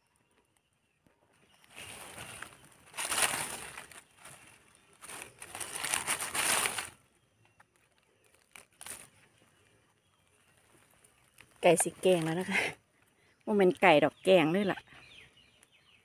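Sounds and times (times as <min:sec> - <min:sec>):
crinkling rustling handling: 0:01.6 - 0:09.6.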